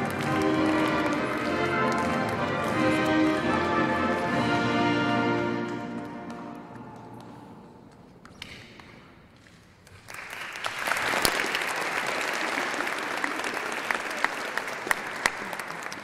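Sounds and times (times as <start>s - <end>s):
ceremonial music chord: 0.0s - 6.8s
audience applause: 0.0s - 7.5s, 9.9s - 16.0s.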